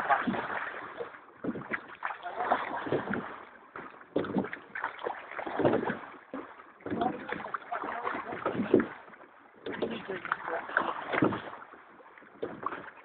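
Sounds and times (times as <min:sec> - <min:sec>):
oars stroking through water: 0:00.0 - 0:13.0
water splashing: 0:00.0 - 0:13.0.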